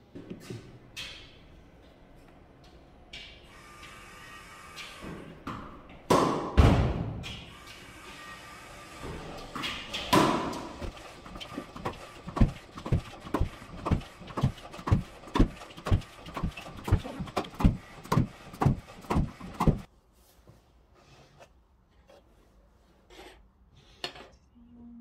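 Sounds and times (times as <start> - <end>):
music with thumping beat: 12.4 - 19.9.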